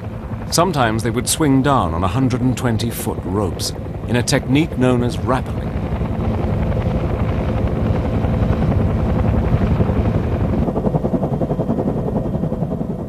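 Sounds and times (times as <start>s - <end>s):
helicopter rotor thudding: 0.0s - 13.0s.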